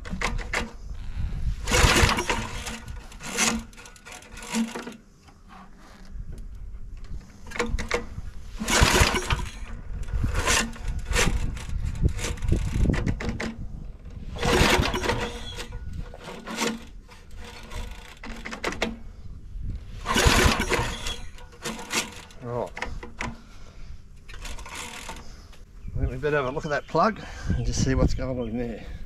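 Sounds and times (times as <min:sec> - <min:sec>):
recoil starter pulls: 0:00.0 - 0:19.1, 0:19.8 - 0:23.6, 0:24.2 - 0:25.6
engine cranking without firing: 0:00.0 - 0:19.2, 0:19.8 - 0:25.7.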